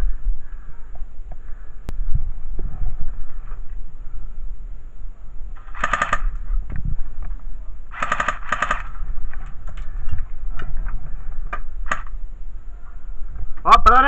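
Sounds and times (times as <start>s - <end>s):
airsoft gun bursts: 5.6s - 6.4s, 7.9s - 9.0s.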